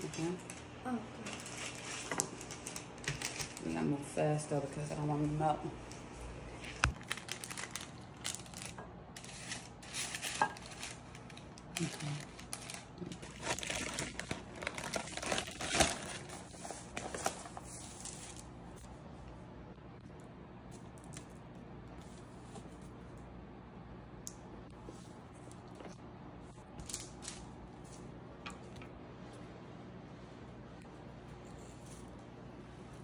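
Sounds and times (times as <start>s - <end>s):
cookie bag crinkling: 0.1s - 4.2s, 5.9s - 18.9s, 26.8s - 28.2s
cookies handled on paper: 0.1s - 4.2s, 4.8s - 19.0s, 20.7s - 23.2s, 24.8s - 28.2s.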